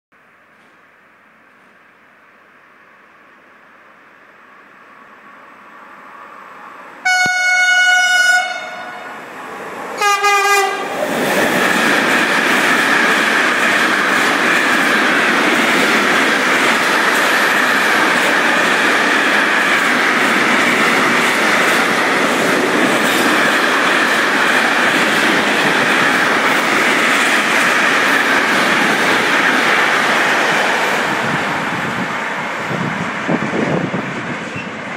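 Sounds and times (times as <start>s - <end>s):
two-tone locomotive horn: 7.0s - 9.2s, 10.0s - 10.9s
freight wagons running on rails: 11.0s - 31.0s.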